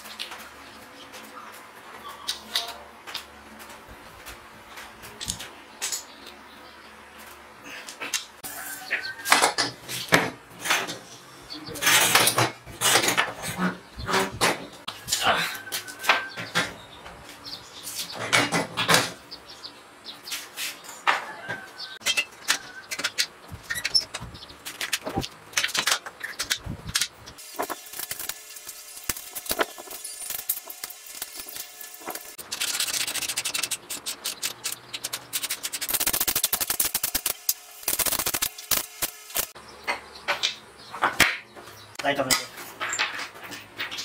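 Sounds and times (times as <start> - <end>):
rubbing and scraping: 22.8 - 39.6
ratchet clicking: 27.7 - 39.6.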